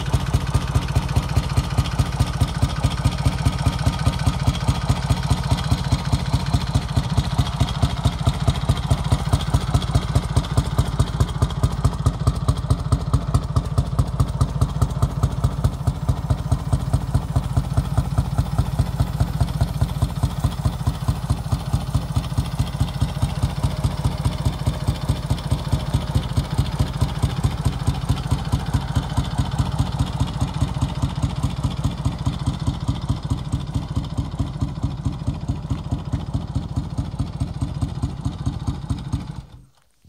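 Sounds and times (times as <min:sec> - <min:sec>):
motorcycle engine idling: 0:00.0 - 0:39.8.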